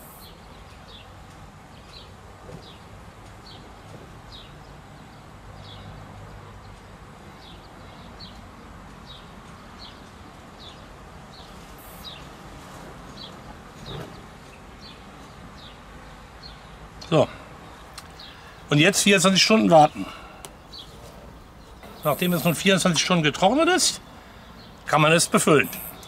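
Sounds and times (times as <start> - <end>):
low background noise: 0.0 - 26.0.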